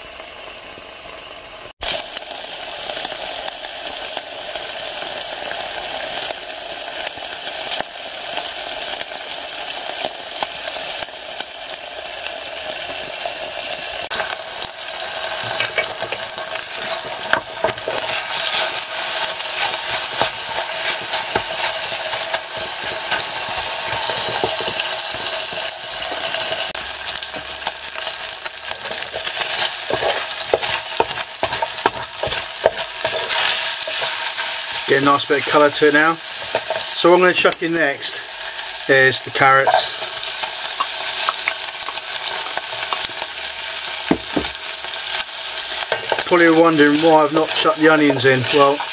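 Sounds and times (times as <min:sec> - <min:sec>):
bacon sizzling in a pan: 0:00.0 - 0:48.9
wooden spoon scraping a pan: 0:15.4 - 0:37.0, 0:39.4 - 0:40.4, 0:45.7 - 0:48.9.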